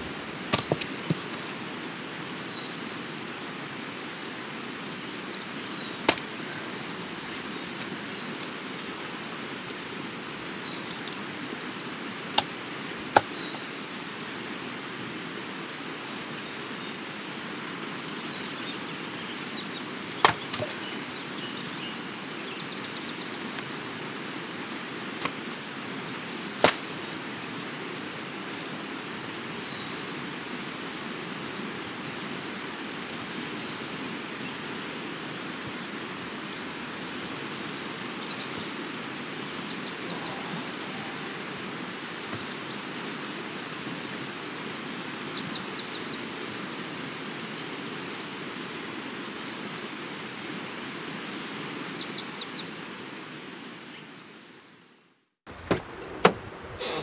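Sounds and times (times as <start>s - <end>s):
small birds chirping: 0.0s - 1.5s, 2.2s - 3.2s, 4.6s - 14.7s, 18.0s - 27.7s, 29.2s - 43.3s
steady hiss: 55.5s - 57.0s.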